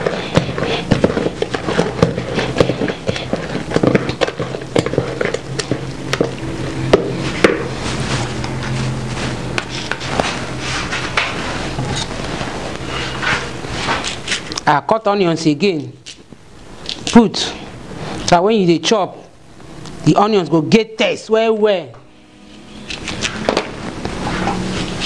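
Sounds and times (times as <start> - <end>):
spoon stirring in plastic bucket: 0.0 - 8.7
low hum: 21.9 - 25.0.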